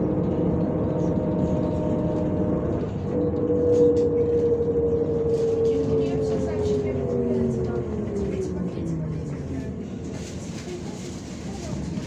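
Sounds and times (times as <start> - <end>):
engine whine: 0.0 - 10.6
bus engine and road hum: 0.0 - 12.0.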